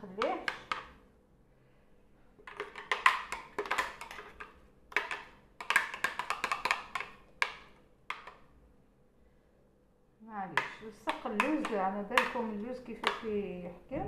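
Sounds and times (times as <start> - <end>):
spatula knocking on a bowl: 10.6 - 13.4.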